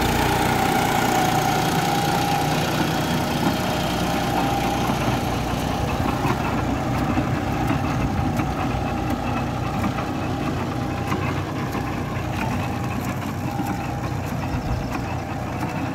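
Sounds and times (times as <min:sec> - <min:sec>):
planter clicks and rattles: 0:00.0 - 0:15.9
tractor diesel engine running: 0:00.0 - 0:15.9.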